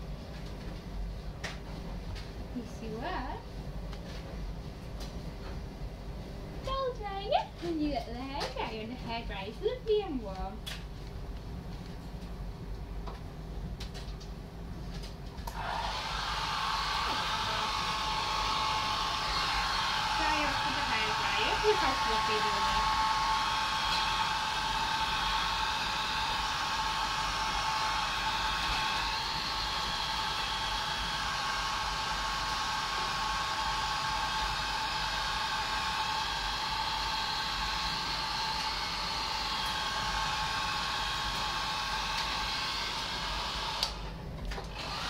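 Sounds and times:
hair dryer running: 0:02.2 - 0:03.4, 0:15.0 - 0:45.0.

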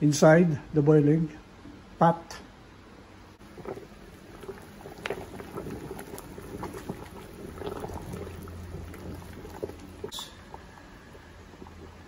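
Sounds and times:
water boiling and bubbling: 0:03.3 - 0:12.0.

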